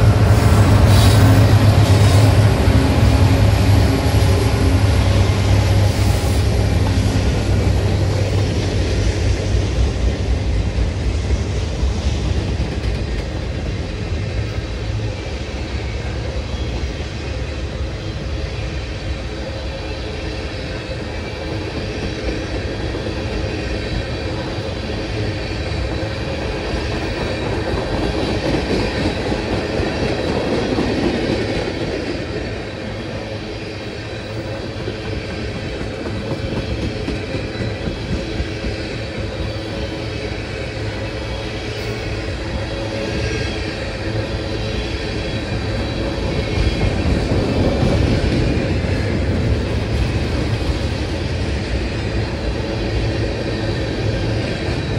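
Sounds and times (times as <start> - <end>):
freight train wheels on rails: 0.0 - 54.9.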